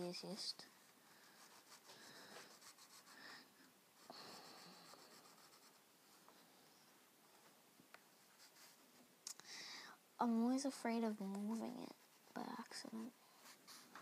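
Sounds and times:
pencil scratching on canvas: 0:01.2 - 0:03.3, 0:04.0 - 0:05.8, 0:11.3 - 0:14.0.

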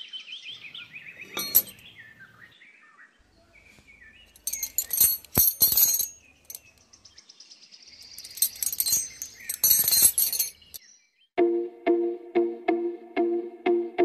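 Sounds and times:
small chain jingling and clinking: 0:01.4 - 0:01.8, 0:04.4 - 0:06.7, 0:08.1 - 0:10.8.

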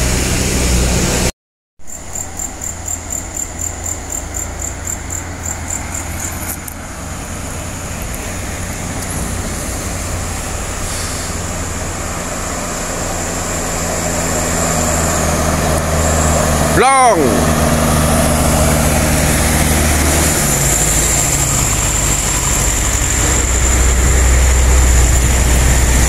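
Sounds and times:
heavy vehicle engines rumbling: 0:02.0 - 0:26.0.

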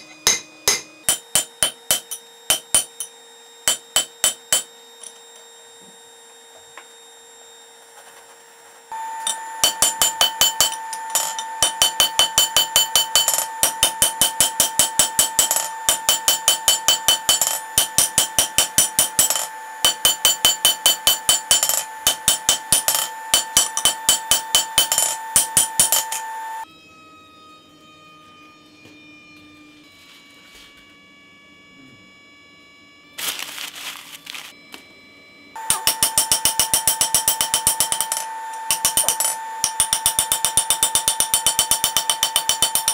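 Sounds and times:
anvil ringing: 0:00.0 - 0:03.1, 0:09.0 - 0:26.6, 0:35.6 - 0:42.9.

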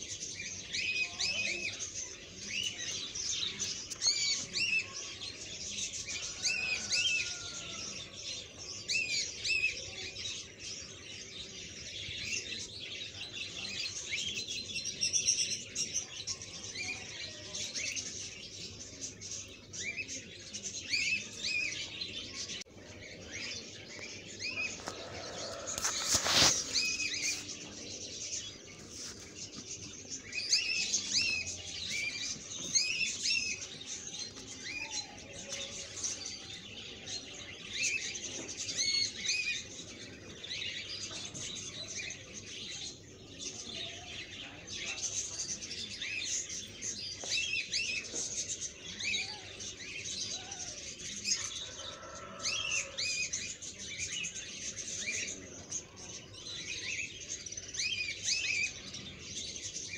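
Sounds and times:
small birds chirping: 0:00.0 - 0:59.9.

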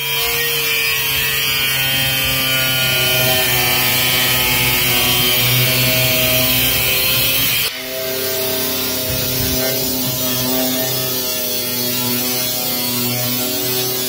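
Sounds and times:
angle grinder cutting steel: 0:00.0 - 0:14.0.

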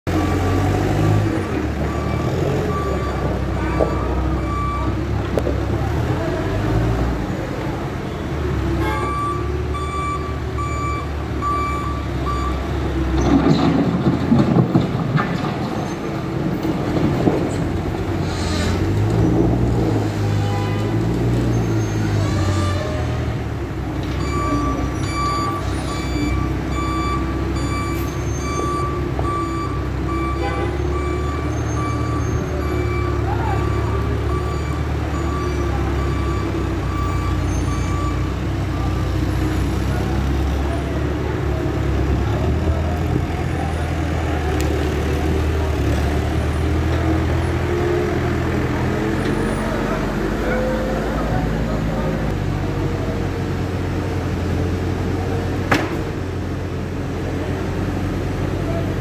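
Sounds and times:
diesel engine working: 0:00.1 - 0:59.0
reversing alarm beeping: 0:00.2 - 0:05.0, 0:08.8 - 0:12.7, 0:24.2 - 0:39.0.

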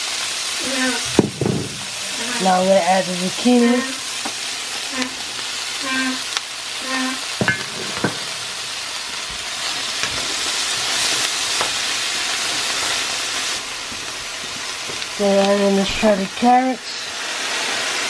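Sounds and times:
vegetables sizzling in oil: 0:00.0 - 0:18.0
sharp knocks in pan: 0:01.1 - 0:02.0, 0:07.4 - 0:08.5.

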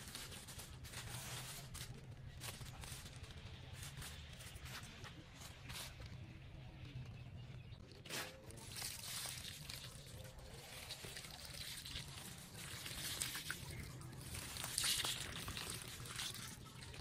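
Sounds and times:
water pouring onto soil: 0:08.6 - 0:17.0.

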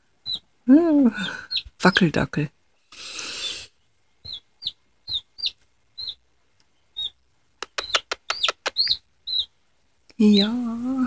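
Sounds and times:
chick peeping: 0:00.2 - 0:02.1, 0:03.0 - 0:09.6, 0:10.2 - 0:11.0
sharp clicks: 0:07.6 - 0:08.9.

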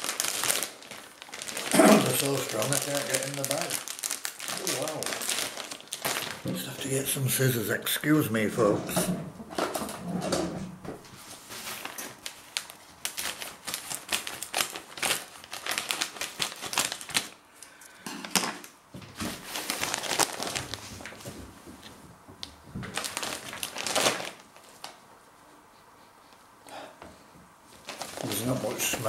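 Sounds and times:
plastic snack bag crinkling: 0:00.0 - 0:07.5, 0:11.4 - 0:21.3, 0:22.8 - 0:25.0, 0:27.7 - 0:29.0.

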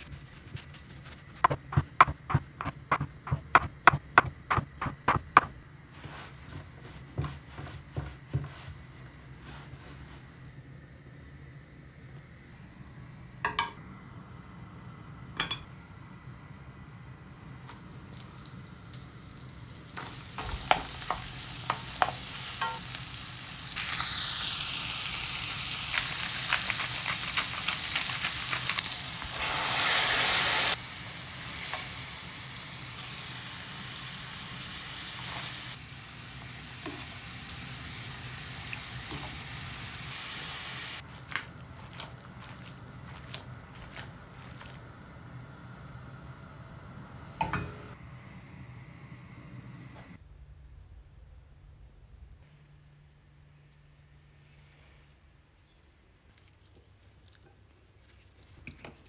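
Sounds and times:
food sizzling in a frying pan: 0:17.6 - 0:41.1.

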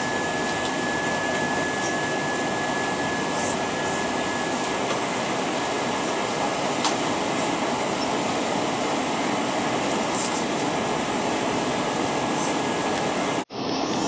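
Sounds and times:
airplane engine and airflow noise: 0:00.0 - 0:14.0
thin steady whine: 0:00.0 - 0:14.0.

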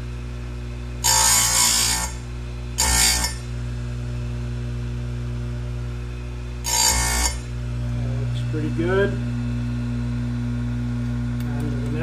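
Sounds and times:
grinding wheel on saw chain: 0:01.0 - 0:02.2, 0:02.8 - 0:03.5, 0:06.6 - 0:07.5
chain grinder motor running: 0:01.0 - 0:03.6, 0:06.6 - 0:09.2.

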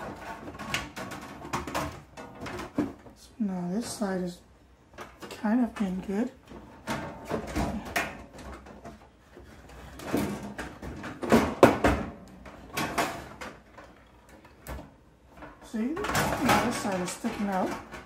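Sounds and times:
plastic handles rattling on metal case: 0:00.0 - 0:03.1, 0:09.7 - 0:18.0.

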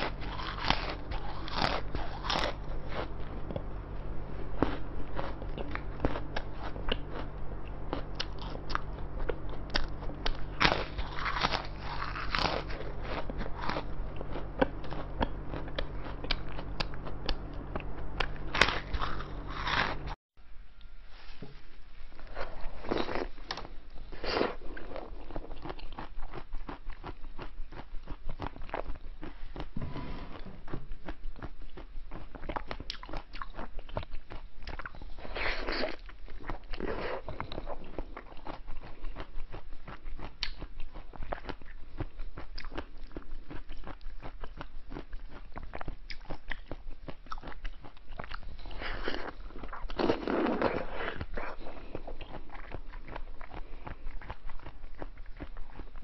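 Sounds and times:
crunching meringues: 0:00.0 - 0:03.6, 0:04.4 - 0:20.2, 0:30.7 - 0:56.0.

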